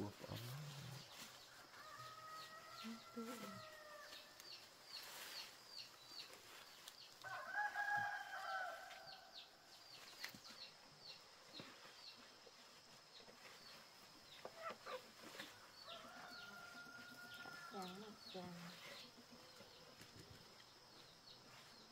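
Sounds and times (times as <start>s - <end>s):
rooster crowing: 1.6s - 4.1s, 7.2s - 9.3s, 15.8s - 17.9s.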